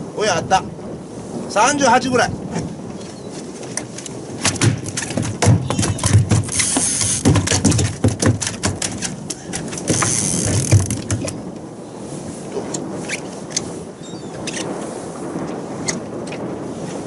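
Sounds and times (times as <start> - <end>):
fishing tackle clicking and knocking: 3.7 - 11.4.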